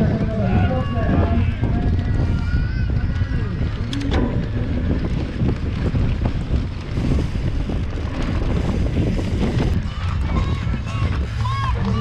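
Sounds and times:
mountain bike rumble and rattle: 0.0 - 12.0
wind buffeting microphone: 0.0 - 12.0.

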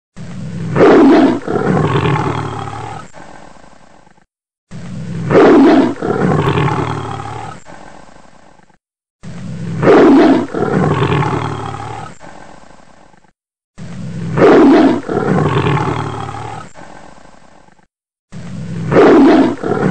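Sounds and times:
lion roaring: 0.2 - 3.2, 4.7 - 7.8, 9.2 - 12.3, 13.8 - 17.0, 18.4 - 19.9.

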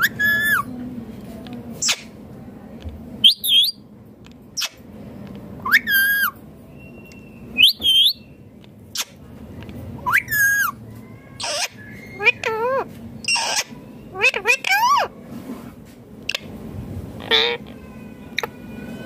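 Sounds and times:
parakeet calling: 0.0 - 0.7, 1.8 - 2.2, 3.2 - 3.8, 5.6 - 9.2, 10.0 - 15.2, 17.2 - 19.0.

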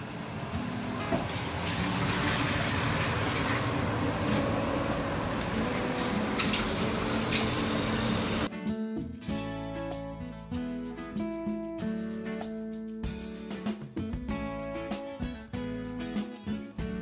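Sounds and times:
metal pot being washed: 1.1 - 8.5
tap water splashing into sink: 6.0 - 8.4.

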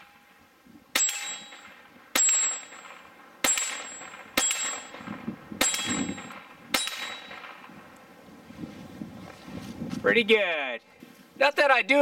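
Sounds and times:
steel target clanging: 0.9 - 7.7
pistol shots: 0.9 - 7.8.

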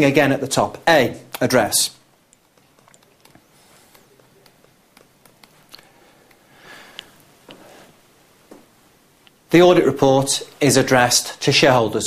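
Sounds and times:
soft hiss: 0.0 - 12.0
stylus tapping on screen: 2.1 - 7.6.

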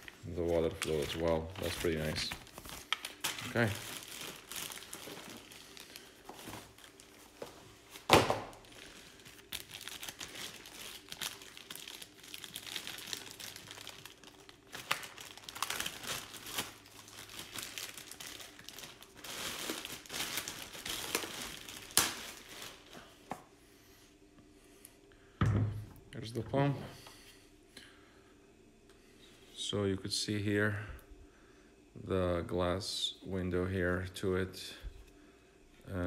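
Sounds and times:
cardboard packaging shifting: 0.0 - 23.0
plastic bag crinkling: 0.0 - 23.2.

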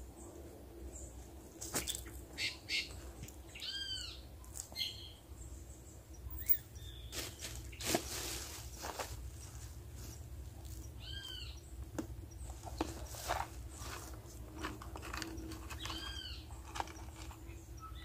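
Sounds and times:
bird calling: 1.7 - 5.2, 10.8 - 11.8, 14.6 - 18.0
fishing tackle clicking and rustling: 12.7 - 17.6.

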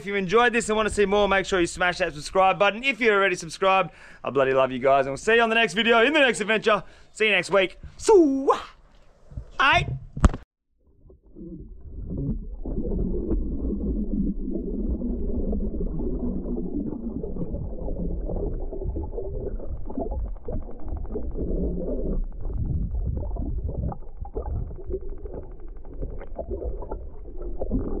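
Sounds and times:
muffled underwater water rumble: 10.8 - 28.0
water gurgling: 10.8 - 28.0.

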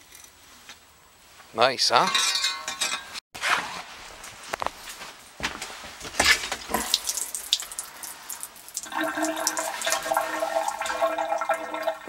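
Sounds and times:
kitchen faucet running: 6.7 - 12.0.

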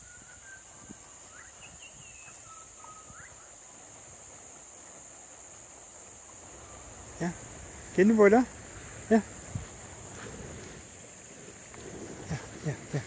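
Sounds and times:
whistled bird calls: 0.0 - 3.8.

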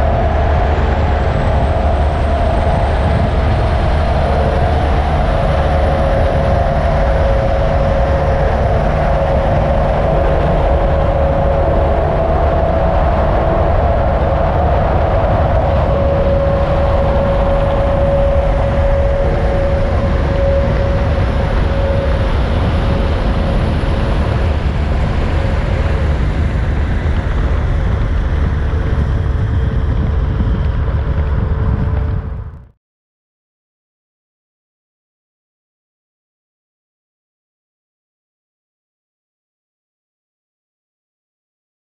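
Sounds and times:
faint drone: 0.0 - 32.7
vehicle road noise rumble: 0.0 - 32.8.

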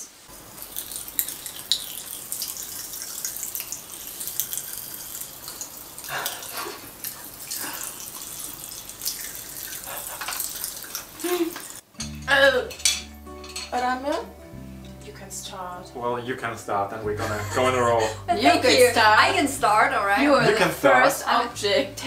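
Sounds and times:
popping candy crackling: 0.4 - 9.6.

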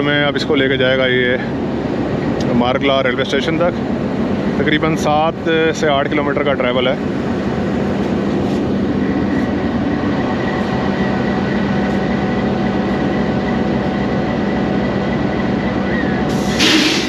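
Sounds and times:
locomotive engine idling: 0.0 - 17.0
loud hiss: 16.3 - 17.0.

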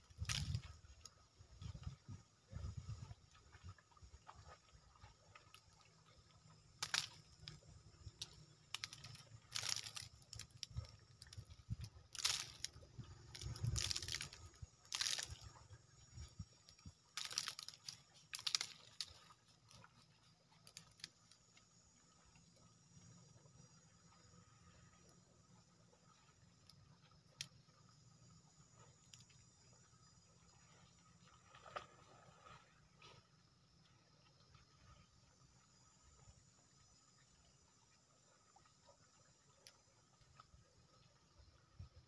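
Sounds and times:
crackling and rustling clicks: 6.8 - 7.6, 8.2 - 15.6, 16.8 - 19.9.

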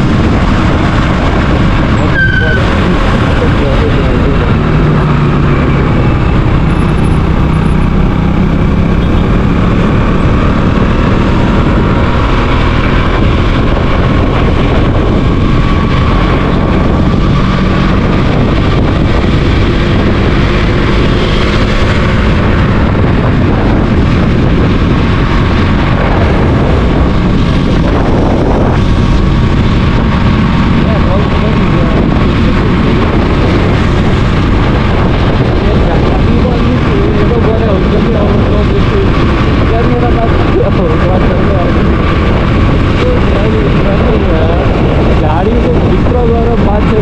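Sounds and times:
motorcycle engine: 0.0 - 47.0
road noise: 0.0 - 47.0.

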